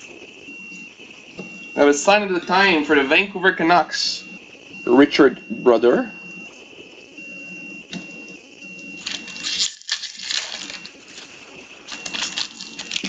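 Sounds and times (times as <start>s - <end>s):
foil wrapper crinkling and tearing: 9.0s - 13.0s.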